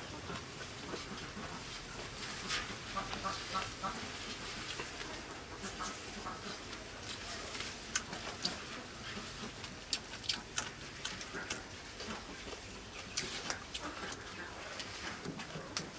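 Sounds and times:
person chewing and lip smacking: 7.8 - 15.9.

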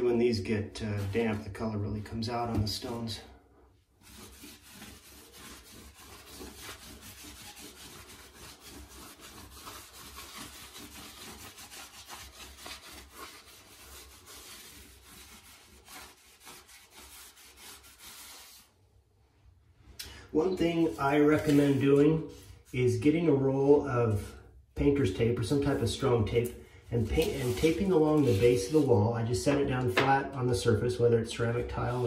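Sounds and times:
rag scrubbing pebble tile floor: 4.0 - 18.7, 27.0 - 29.0.

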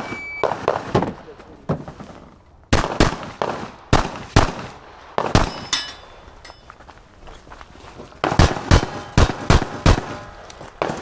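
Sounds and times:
pistol shots: 0.0 - 1.4, 2.7 - 5.8, 8.2 - 11.0.

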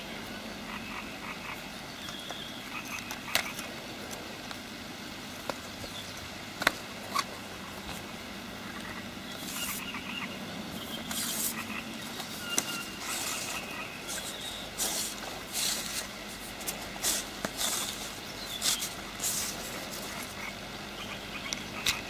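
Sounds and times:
hands rustling fishing line: 11.0 - 20.4.

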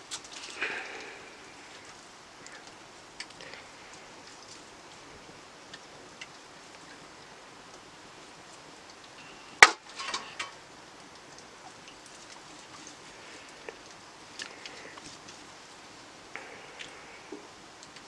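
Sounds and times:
faint steady hiss: 0.0 - 18.0.

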